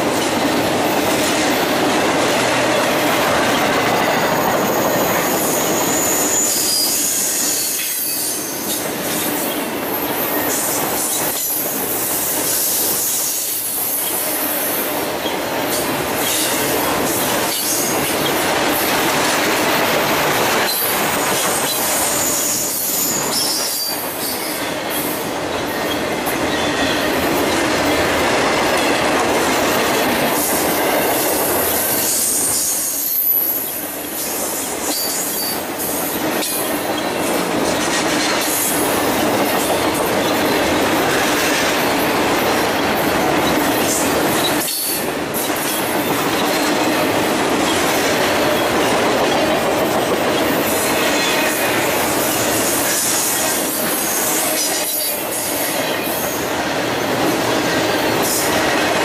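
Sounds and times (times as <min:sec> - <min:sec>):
freight train rolling past: 0:00.0 - 0:59.0
high wheel squeal: 0:04.4 - 0:08.8, 0:20.7 - 0:24.7.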